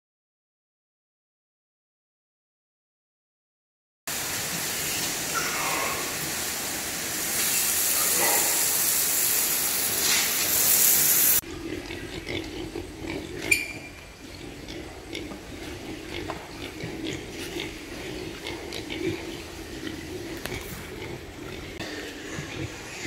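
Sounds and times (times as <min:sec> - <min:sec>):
hose spraying water on concrete: 0:04.1 - 0:11.4
pigs grunting softly: 0:11.4 - 0:23.0.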